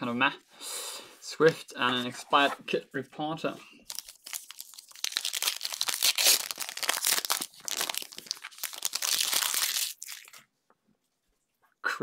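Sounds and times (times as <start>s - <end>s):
foil wrapper tearing and crinkling: 3.9s - 10.4s.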